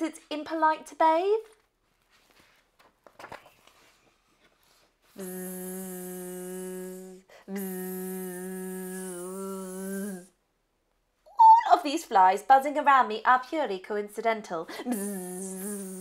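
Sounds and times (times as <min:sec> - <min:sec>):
woman buzzing through teeth: 0:05.1 - 0:10.3, 0:14.8 - 0:16.0.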